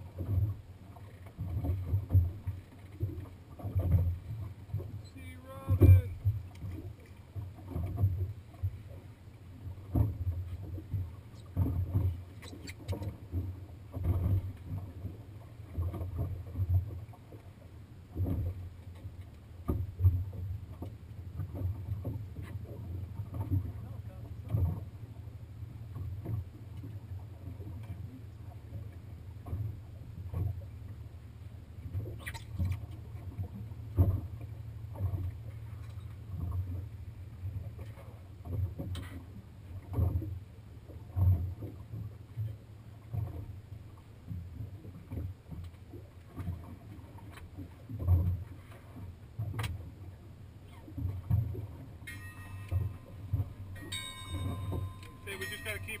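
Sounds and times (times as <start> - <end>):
waves slapping boat hull: 0.0 - 56.0
steady low rumble: 51.9 - 56.0.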